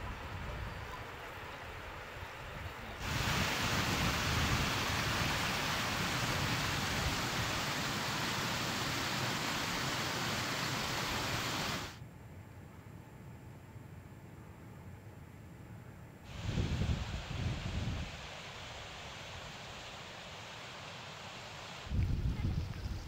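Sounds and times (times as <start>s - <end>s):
running water rushing: 3.0s - 12.0s, 16.3s - 22.0s.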